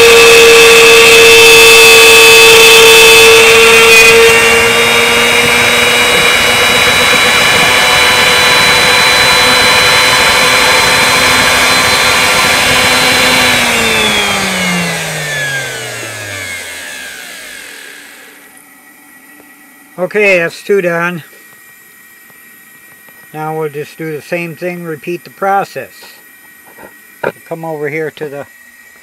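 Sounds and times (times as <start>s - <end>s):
motor spinning down: 0.0s - 21.1s
router motor whining: 0.0s - 21.6s.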